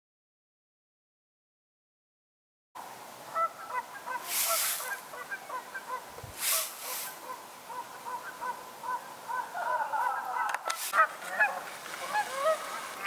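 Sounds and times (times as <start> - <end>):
geese honking: 3.3 - 13.0.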